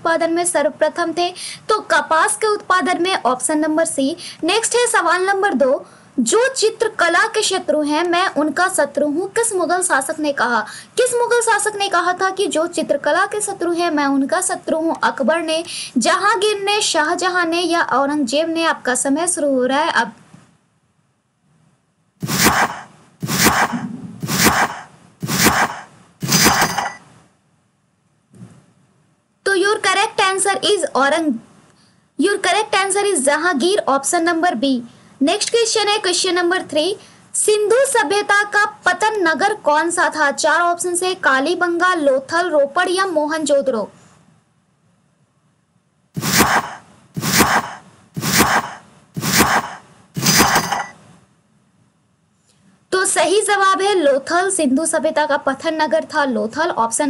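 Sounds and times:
hissing timer beats: 22.2 - 27.0, 46.2 - 50.9.

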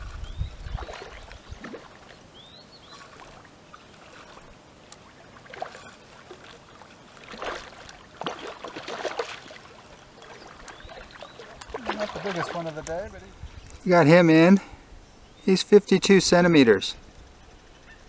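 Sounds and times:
fish splashing and thrashing in water: 0.0 - 13.0.

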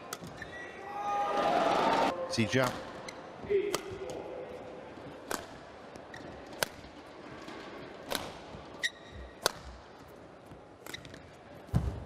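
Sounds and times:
rackets striking shuttlecock: 3.7 - 4.2, 5.2 - 5.6, 6.2 - 9.9
shoe squeak: 8.8 - 9.4.

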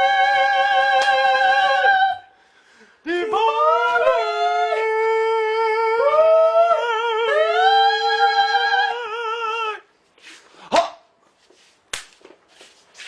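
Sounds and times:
men singing long high notes: 0.0 - 2.4, 3.0 - 9.9.

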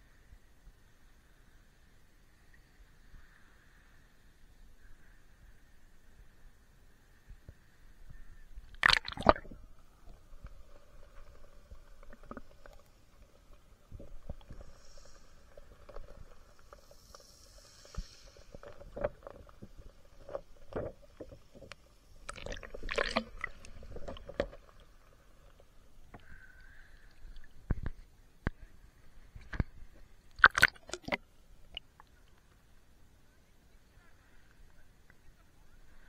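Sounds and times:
water gurgling: 8.5 - 17.0, 17.9 - 28.0, 29.3 - 32.2.

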